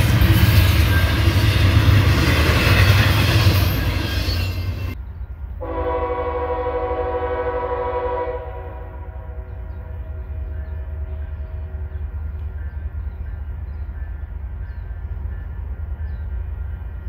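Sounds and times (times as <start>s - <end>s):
freight train rumbling past: 0.0s - 17.0s
locomotive air horn blast: 5.6s - 10.4s.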